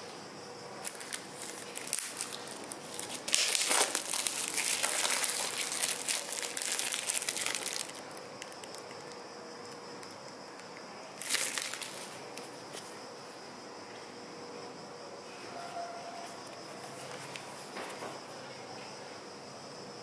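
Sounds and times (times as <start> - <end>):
plastic bag crinkling: 0.8 - 9.2, 11.2 - 12.5.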